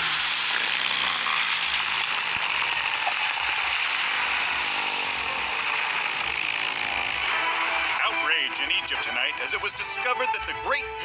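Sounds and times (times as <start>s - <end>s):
air hissing out of inflatable: 0.0s - 7.0s.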